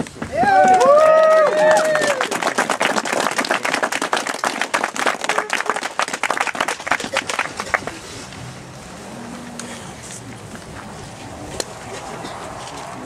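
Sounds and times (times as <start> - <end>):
crowd murmur: 0.3 - 13.0
crowd applauding: 0.4 - 8.1.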